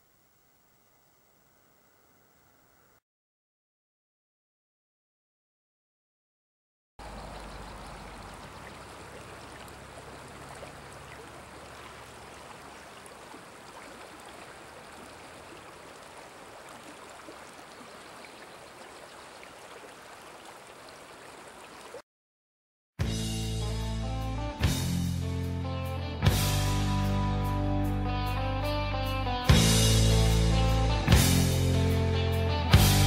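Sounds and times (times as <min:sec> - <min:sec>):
river flowing over rocks: 0:07.0 - 0:22.0.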